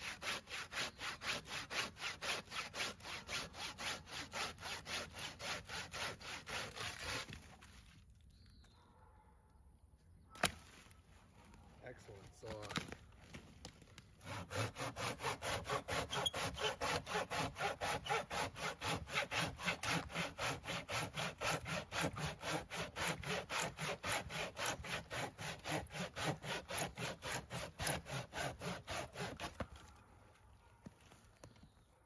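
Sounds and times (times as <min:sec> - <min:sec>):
pruning saw cutting branch: 0:00.0 - 0:07.5, 0:14.2 - 0:30.0.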